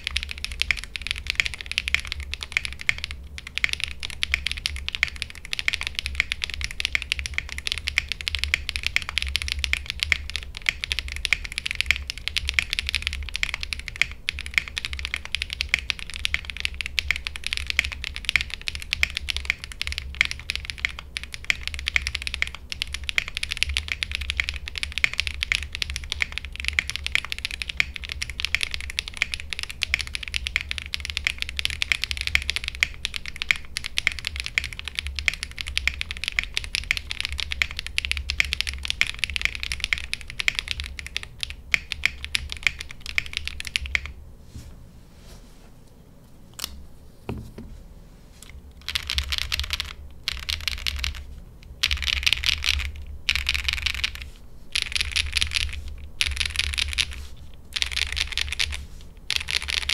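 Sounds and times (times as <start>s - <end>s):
fast typing on mechanical keyboard: 0.0s - 44.2s, 48.7s - 59.9s.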